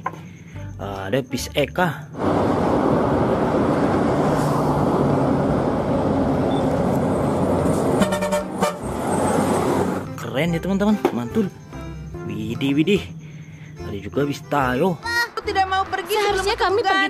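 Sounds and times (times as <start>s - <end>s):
coach engine and road noise: 0.0s - 17.0s
horn blast: 8.0s - 9.0s.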